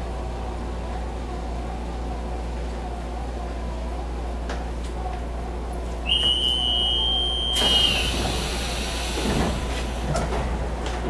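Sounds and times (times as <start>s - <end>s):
train carriage low hum: 0.0s - 11.0s
high warning tone: 6.1s - 8.3s
air hiss of doors closing: 7.4s - 10.4s.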